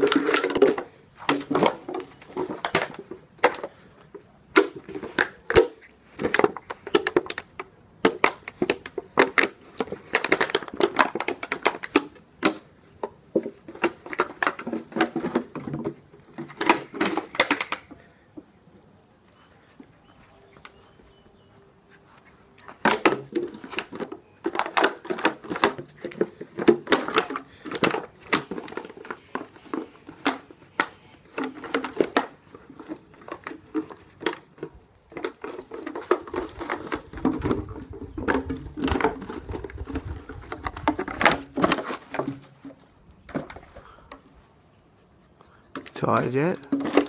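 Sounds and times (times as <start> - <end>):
plastic bottle crackling: 4.5 - 18.0, 22.6 - 44.2, 45.8 - 47.0.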